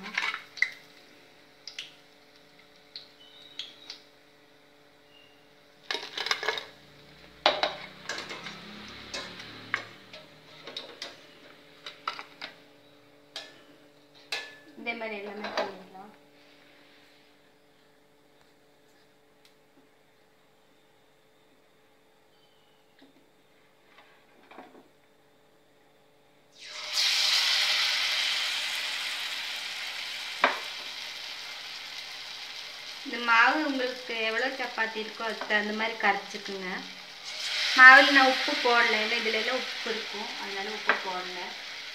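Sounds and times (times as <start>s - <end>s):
batter sizzling in hot oil: 26.6s - 41.9s.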